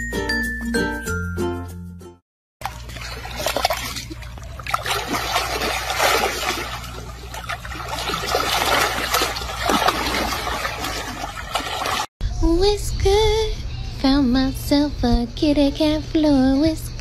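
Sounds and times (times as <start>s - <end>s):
water splashing and sloshing: 2.6s - 12.1s.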